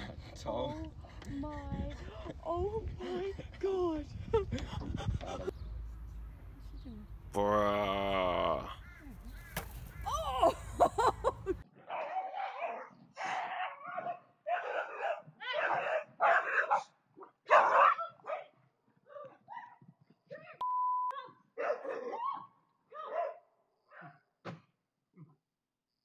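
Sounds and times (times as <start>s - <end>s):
dog barking: 11.8s - 19.8s, 21.6s - 24.2s
short steady beep: 20.6s - 21.2s.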